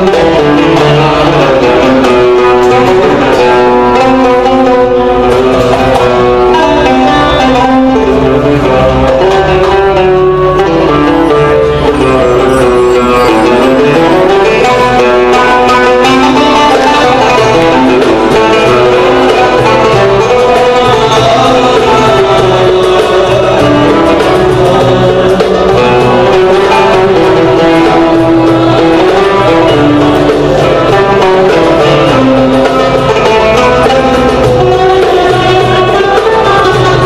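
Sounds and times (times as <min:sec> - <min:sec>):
plucked strings: 0:00.0 - 0:37.0
violins: 0:00.0 - 0:37.0.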